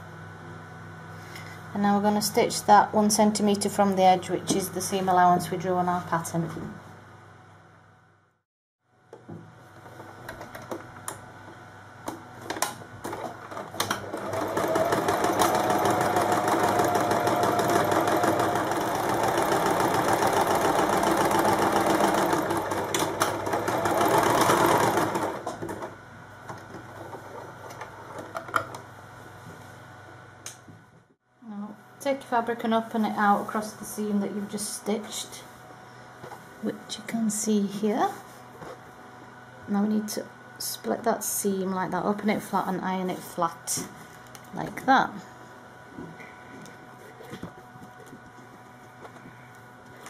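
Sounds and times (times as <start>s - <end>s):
sewing machine stitching: 13.1s - 25.9s.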